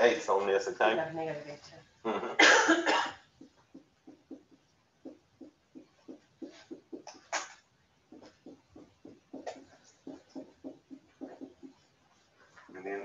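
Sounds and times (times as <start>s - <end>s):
marker tapping on whiteboard: 3.4s - 11.9s
marker squeaking: 3.7s - 12.0s.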